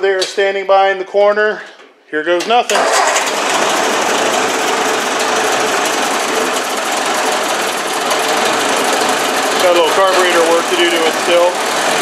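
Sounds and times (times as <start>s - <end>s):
tractor engine running: 2.7s - 12.0s.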